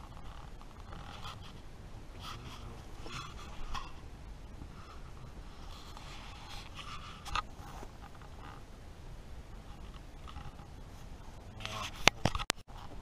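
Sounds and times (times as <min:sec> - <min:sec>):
fabric rustling and rubbing: 0:00.0 - 0:04.0, 0:04.7 - 0:08.6.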